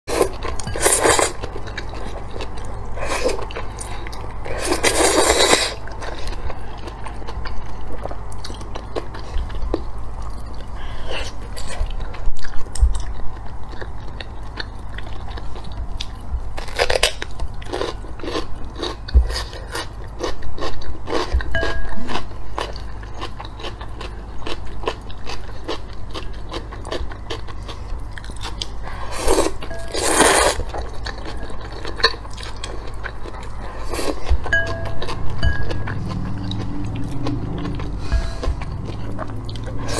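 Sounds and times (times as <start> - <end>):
crunchy chewing: 0.1 - 39.9
slurping noodles: 4.4 - 6.3, 29.0 - 30.7.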